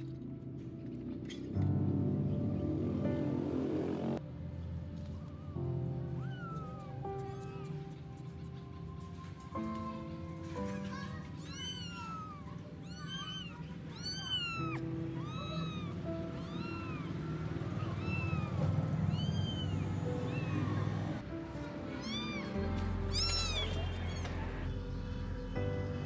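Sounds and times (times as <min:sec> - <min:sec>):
background music: 0:00.0 - 0:26.0
kitten mewing: 0:06.2 - 0:08.0, 0:11.0 - 0:20.8, 0:22.0 - 0:24.7.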